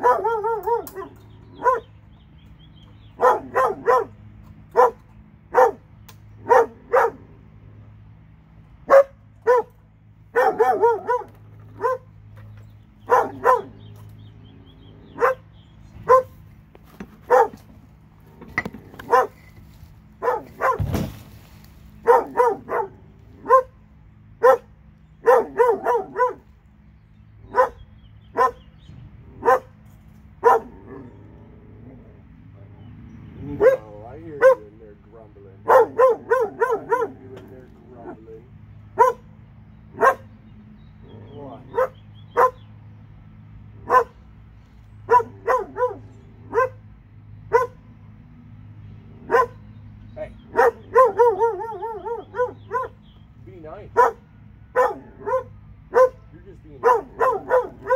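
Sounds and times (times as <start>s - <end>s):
dog barking: 0.0s - 1.9s, 3.2s - 5.8s, 6.4s - 7.2s, 8.9s - 12.1s, 13.1s - 13.8s, 15.1s - 16.4s, 17.3s - 17.6s, 19.0s - 19.4s, 20.2s - 20.9s, 22.0s - 23.8s, 24.4s - 26.4s, 27.5s - 28.6s, 29.4s - 29.7s, 30.4s - 31.1s, 33.5s - 34.7s, 35.6s - 38.2s, 39.0s - 39.3s, 40.0s - 40.3s, 41.7s - 42.6s, 43.8s - 44.2s, 45.1s - 46.8s, 47.5s - 47.8s, 49.2s - 49.6s, 50.5s - 53.0s, 54.0s - 57.9s.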